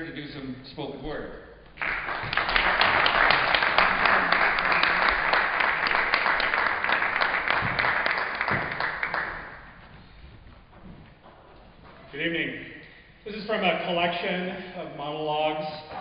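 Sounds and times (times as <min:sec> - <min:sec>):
audience applauding: 0:01.8 - 0:09.8.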